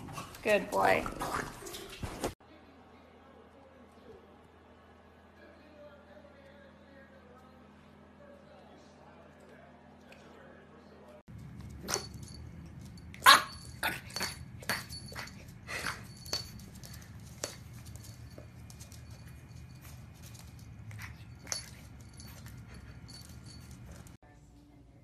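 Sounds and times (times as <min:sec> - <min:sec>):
puppy barking: 0:13.2 - 0:14.4.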